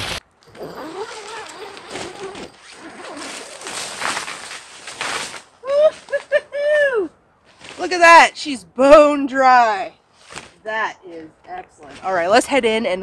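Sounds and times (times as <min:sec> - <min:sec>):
shuffling in snow: 0:00.0 - 0:06.4
snow brushed off tent fabric: 0:00.8 - 0:06.2
man exclaiming: 0:06.6 - 0:07.1.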